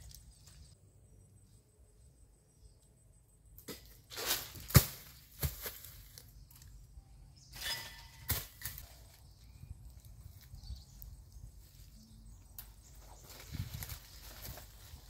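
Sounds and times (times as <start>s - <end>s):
fruit crashing through leaves: 3.7s - 6.2s.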